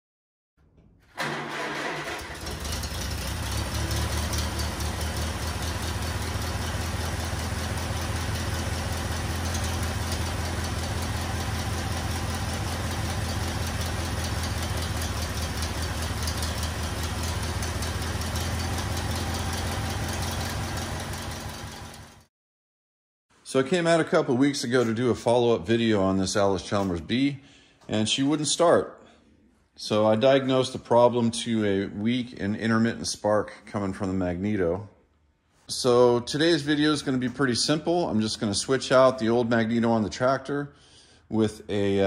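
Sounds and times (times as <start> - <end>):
piston engine starting and idling: 0.6 - 22.3.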